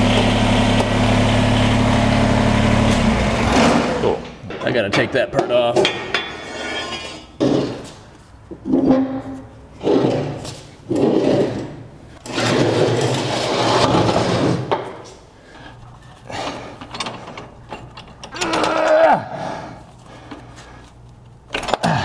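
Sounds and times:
mower deck scraping on concrete: 8.7 - 15.0
metal clunks and rattles: 16.4 - 18.8.

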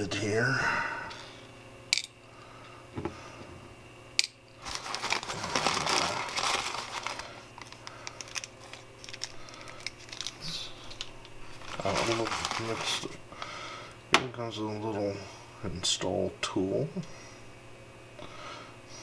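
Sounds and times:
plastic bag crinkling: 4.6 - 13.2.

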